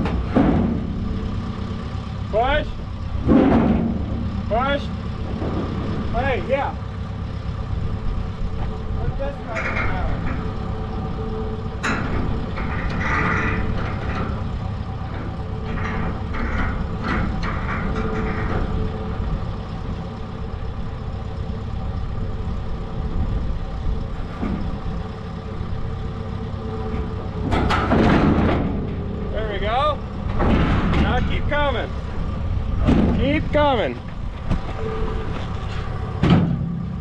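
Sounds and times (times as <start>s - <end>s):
knocks and clanks: 0.0s - 20.1s, 24.1s - 37.0s
diesel engine idling: 0.0s - 37.0s.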